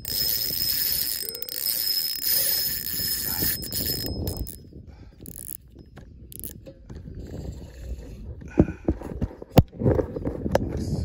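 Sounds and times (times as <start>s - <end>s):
fishing rod rustle: 0.0s - 4.6s, 5.2s - 8.3s
fishing reel clicking and whirring: 0.0s - 6.6s.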